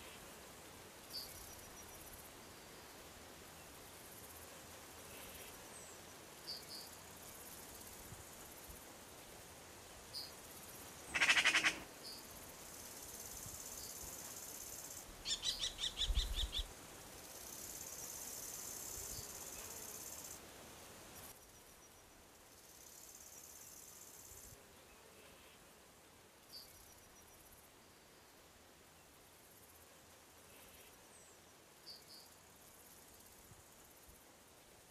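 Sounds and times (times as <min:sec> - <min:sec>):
insects chirring: 0:10.1 - 0:20.4
rattling bird calls: 0:11.2 - 0:11.8.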